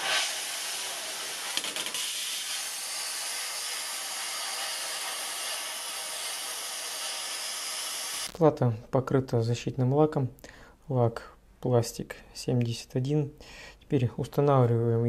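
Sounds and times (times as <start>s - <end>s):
plasma cutter hissing: 0.0s - 8.3s.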